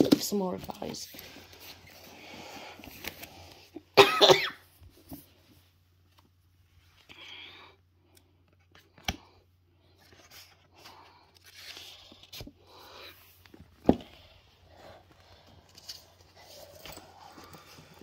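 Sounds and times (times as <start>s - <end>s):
rustling of book covers and bag: 0.0s - 3.9s, 8.4s - 18.0s.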